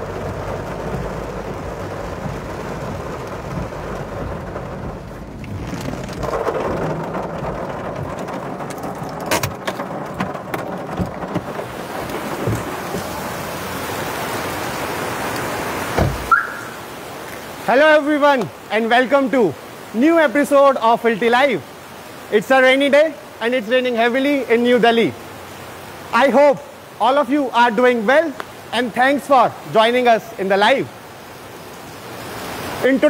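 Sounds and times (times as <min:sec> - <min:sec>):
heavy rain falling: 0:00.0 - 0:33.0
thump: 0:16.0 - 0:16.4.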